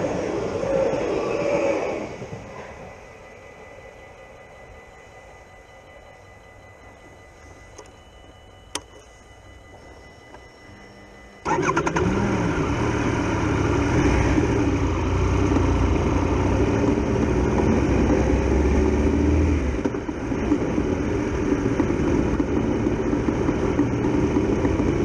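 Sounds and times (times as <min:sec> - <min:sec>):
motorcycle engine pulling away: 0:11.4 - 0:25.0.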